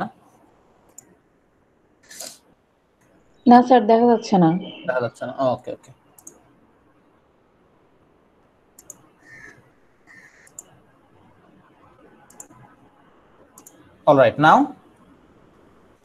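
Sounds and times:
computer mouse clicks: 0.8s - 1.2s, 6.2s - 6.5s, 8.8s - 10.8s, 12.2s - 12.8s, 13.5s - 13.9s.

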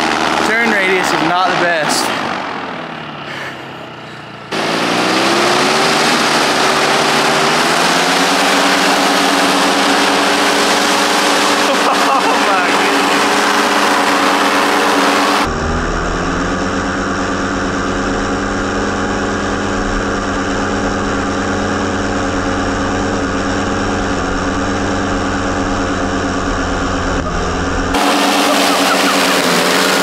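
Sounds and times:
two-stroke engine with propeller: 0.0s - 30.0s
heavy low rumble: 6.1s - 30.0s.

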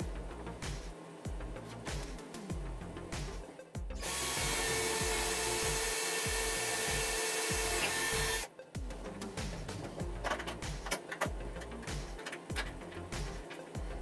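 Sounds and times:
background music: 0.0s - 14.0s
cordless drill boring into wood: 4.0s - 8.5s.

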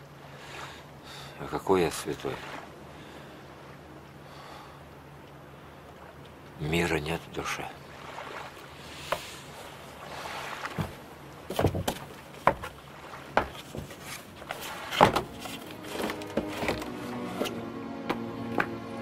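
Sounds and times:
soft music with sustained notes: 14.8s - 19.0s.

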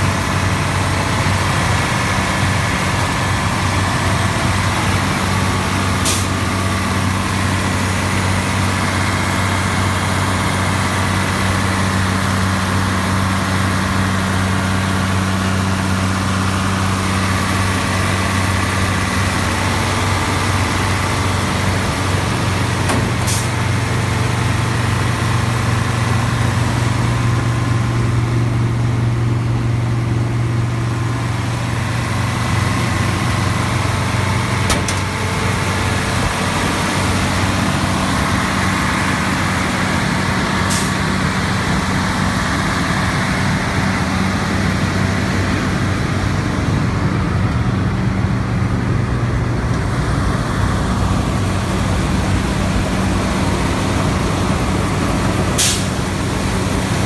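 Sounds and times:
diesel engine idling: 0.0s - 57.0s.

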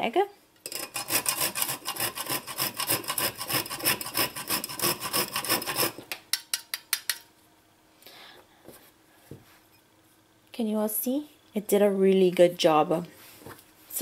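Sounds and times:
nutmeg rasping on grater: 0.7s - 6.0s.

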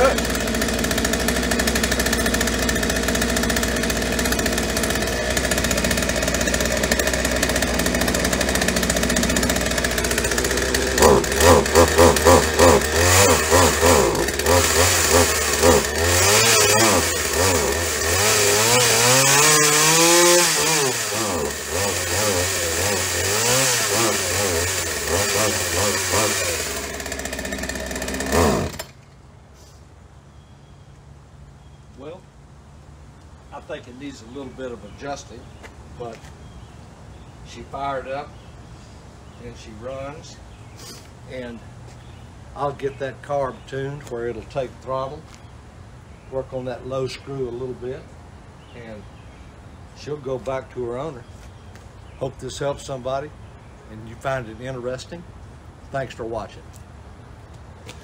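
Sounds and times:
chainsaw engine idling and revving: 0.0s - 29.1s.

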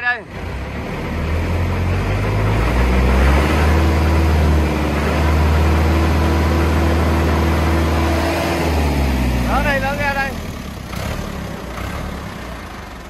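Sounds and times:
diesel tractor engine droning: 0.0s - 13.0s.

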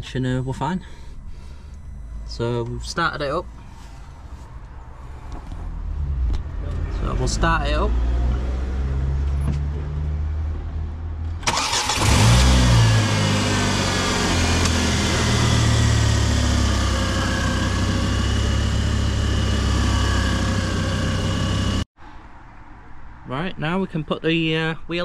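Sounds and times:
low steady hum: 0.0s - 7.6s
car engine starting and idling: 0.0s - 21.9s.

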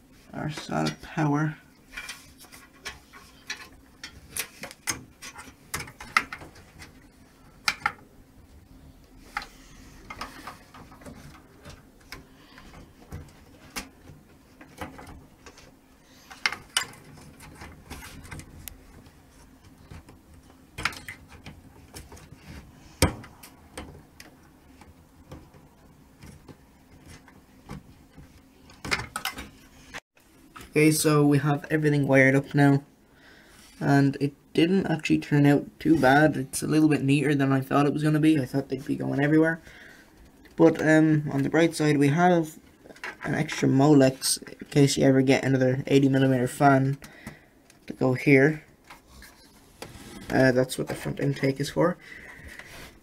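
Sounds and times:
cable rustling: 0.0s - 30.9s, 35.0s - 53.0s.

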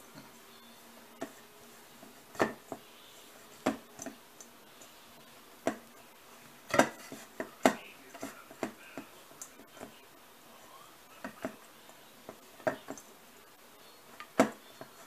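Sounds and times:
dough knocking on metal bowl: 2.0s - 2.8s, 3.6s - 4.2s, 5.6s - 5.9s, 6.6s - 9.1s, 11.2s - 13.1s, 14.2s - 15.0s.

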